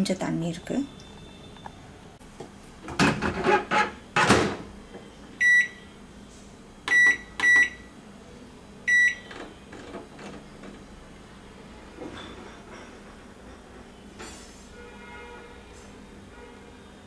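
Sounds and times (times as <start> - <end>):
microwave keypad beeps: 5.4 - 5.8, 6.9 - 7.9, 8.9 - 9.3.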